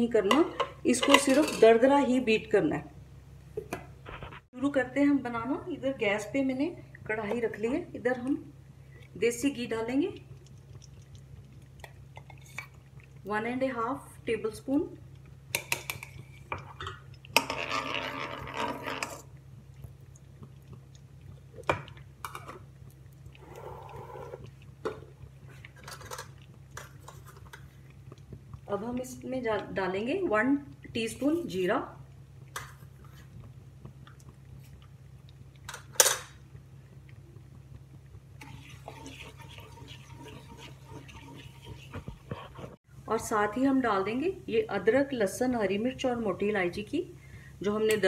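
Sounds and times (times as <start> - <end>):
seeds frying in hot fat: 3.6 - 48.0
steel spoon scraping in pan: 38.4 - 42.8
wooden spatula stirring seeds: 38.4 - 42.8.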